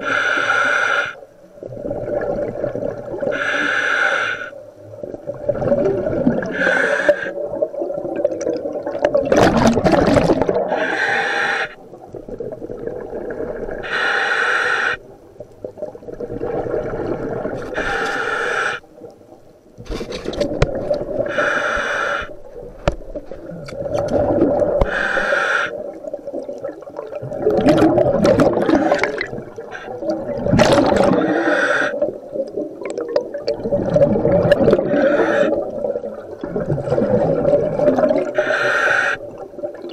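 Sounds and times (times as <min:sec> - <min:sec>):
diver inhaling through regulator: 0:00.0 - 0:01.2, 0:03.3 - 0:04.6, 0:06.4 - 0:07.4, 0:10.7 - 0:11.8, 0:13.8 - 0:15.1, 0:17.6 - 0:18.9, 0:21.2 - 0:22.4, 0:24.7 - 0:25.8, 0:30.9 - 0:32.1, 0:34.7 - 0:35.7, 0:38.3 - 0:39.3
bubbling exhalations: 0:05.2 - 0:11.0, 0:19.9 - 0:39.9.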